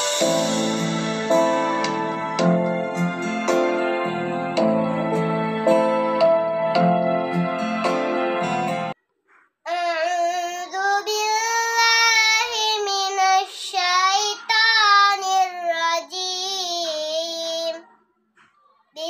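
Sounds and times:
keyboard music: 0.0s - 9.0s
girl chanting recitation: 9.7s - 18.0s.

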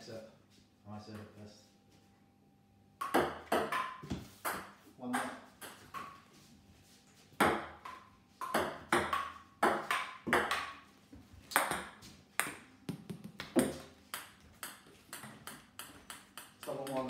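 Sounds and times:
ball bouncing on wooden table: 3.0s - 6.2s, 7.4s - 10.8s, 11.5s - 17.0s
table tennis ball hitting paddles: 3.0s - 6.2s, 7.4s - 17.0s.

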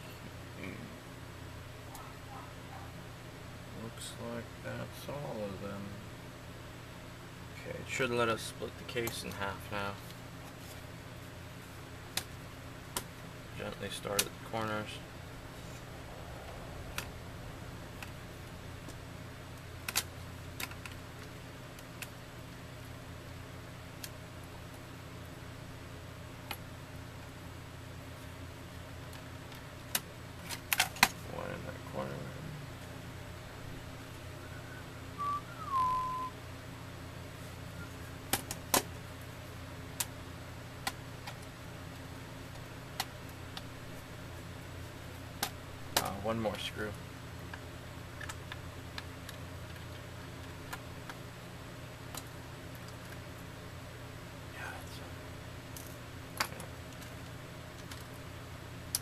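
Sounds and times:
whistled note sliding down: 34.4s - 36.3s.

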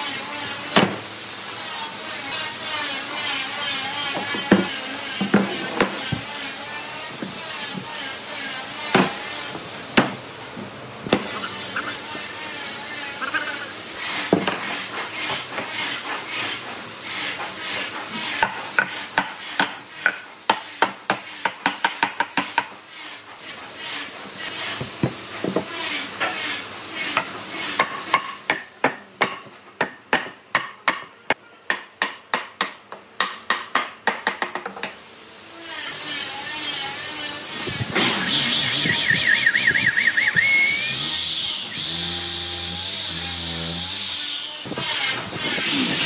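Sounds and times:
scraping and rubbing: 37.4s - 46.0s.

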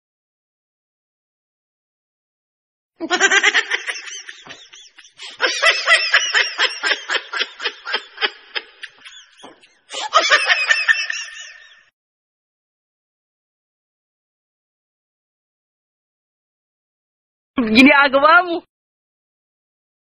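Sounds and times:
high-pitched laughter: 3.0s - 11.9s.

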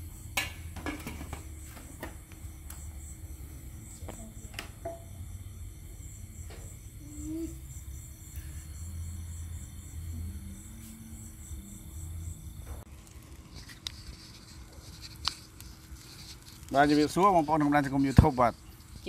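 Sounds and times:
crickets chirping: 0.0s - 19.0s
steady low hum: 0.0s - 19.0s.

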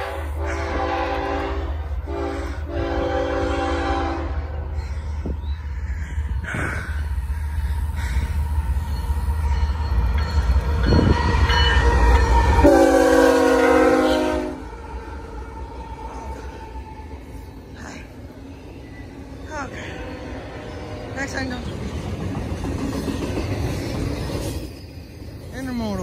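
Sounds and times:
locomotive horn blast: 0.0s - 4.5s, 11.0s - 15.3s
diesel locomotives rumbling: 0.0s - 26.0s.

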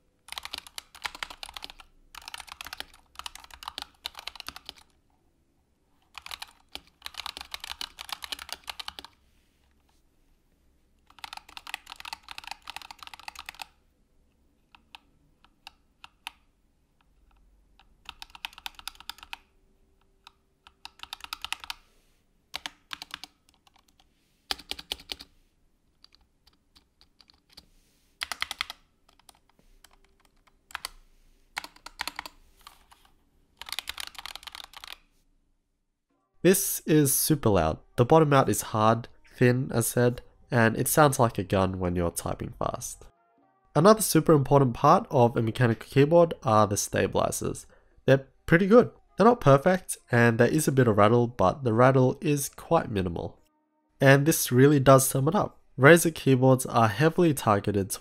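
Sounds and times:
mechanical keyboard typing: 0.2s - 5.0s, 6.1s - 9.2s, 11.0s - 13.8s, 14.7s - 16.5s, 17.1s - 19.5s, 20.1s - 21.8s, 22.5s - 25.3s, 25.9s - 27.6s, 28.2s - 35.0s.

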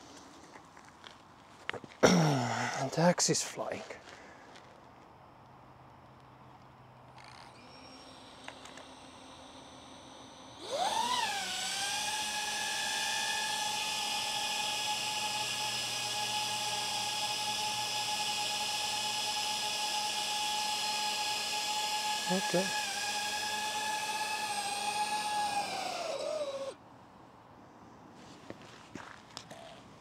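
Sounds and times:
drone propellers whining: 7.2s - 26.8s.

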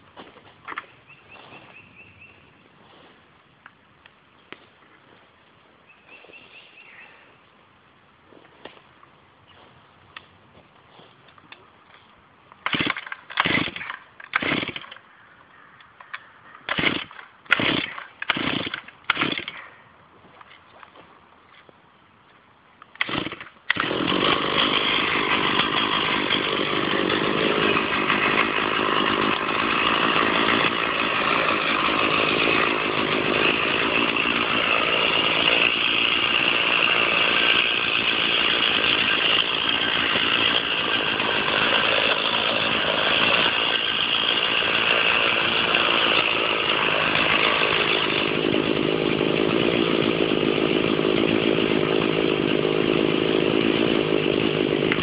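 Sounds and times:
chainsaw cutting wood: 12.6s - 15.1s, 16.1s - 19.7s, 22.9s - 55.0s.

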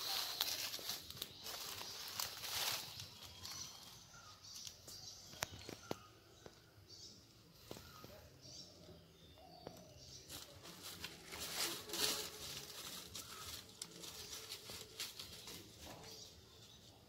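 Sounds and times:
dry leaves crunching underfoot: 0.0s - 6.0s, 10.2s - 16.8s.

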